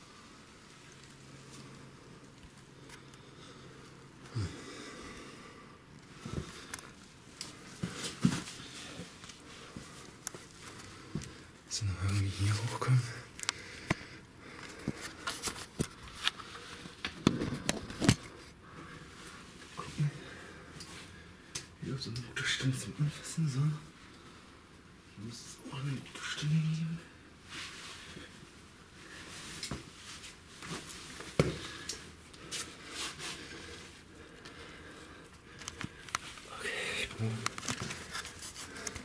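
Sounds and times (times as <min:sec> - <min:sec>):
clothes rustling: 0:27.4 - 0:36.5.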